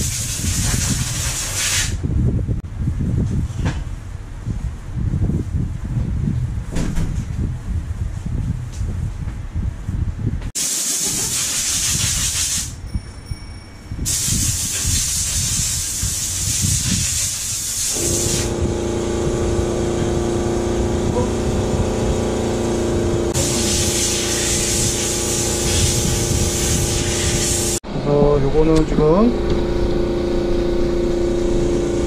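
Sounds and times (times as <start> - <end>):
wind rumble on microphone: 0.0 - 10.6, 11.8 - 23.6, 24.4 - 32.0
compressed air hissing: 10.6 - 12.8, 14.0 - 19.6, 21.9 - 27.8
motor hum: 18.0 - 32.0.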